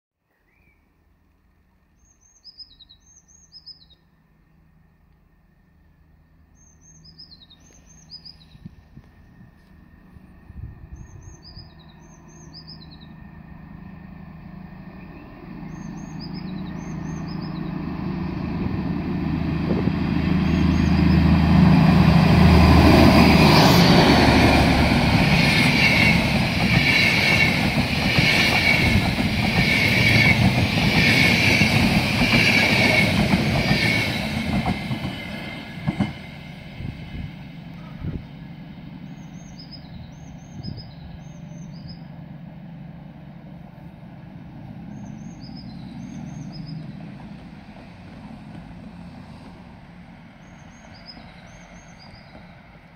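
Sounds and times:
diesel locomotive accelerating: 3.2 - 52.9
birds chirping: 6.5 - 9.6, 10.8 - 13.9, 14.5 - 36.8, 37.4 - 42.3, 44.1 - 48.4, 50.2 - 52.8
train wheels clattering on rails: 22.0 - 36.5.

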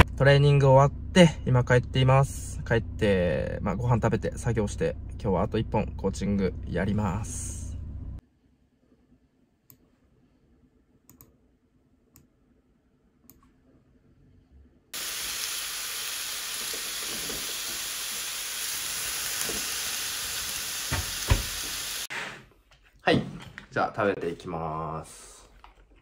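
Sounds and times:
meat sizzling in a frying pan: 15.0 - 22.1.

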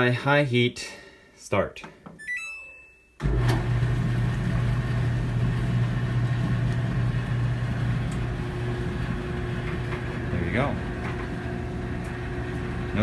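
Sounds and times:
dryer motor click: 3.2 - 3.8, 6.6 - 13.0
dryer drum low hum: 3.2 - 13.0.

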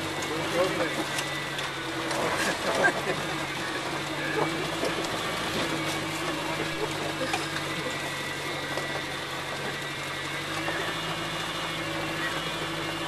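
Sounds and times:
car engine running: 0.0 - 13.0.

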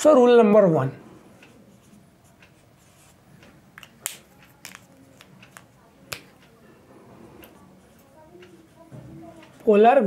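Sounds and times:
marker writing on whiteboard: 1.4 - 3.2.

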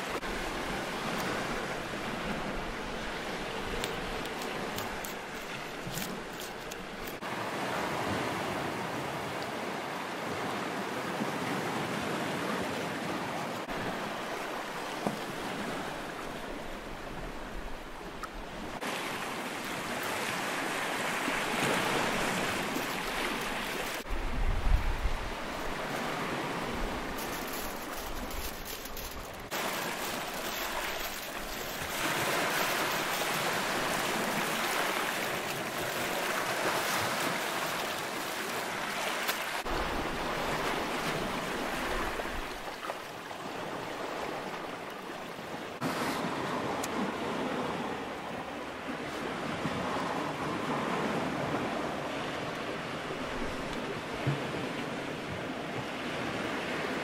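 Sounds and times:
waves washing over pebbles: 18.8 - 24.1, 25.0 - 44.5.

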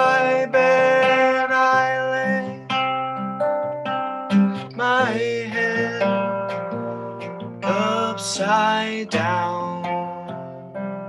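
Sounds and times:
man singing: 0.0 - 2.8, 4.6 - 6.8, 7.6 - 10.5
acoustic guitar strummed: 0.0 - 11.0.

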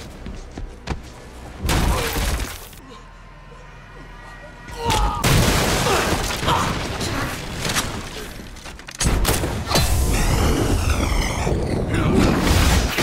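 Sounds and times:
wall smashing with debris: 5.2 - 8.2.

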